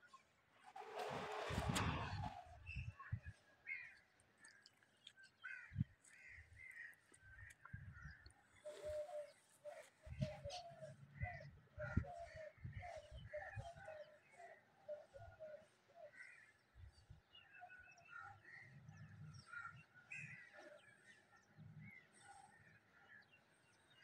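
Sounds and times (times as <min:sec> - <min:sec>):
birds calling: 0:01.7 - 0:24.0.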